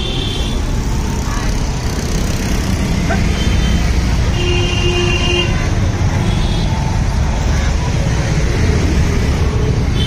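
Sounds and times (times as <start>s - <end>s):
street traffic with motorbikes: 0.0s - 10.0s.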